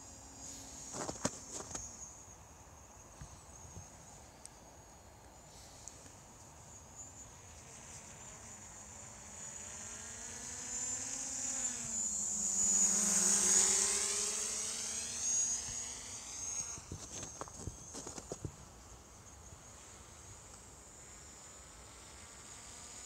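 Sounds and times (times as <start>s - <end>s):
passing motor whining hum: 6.9s - 23.0s.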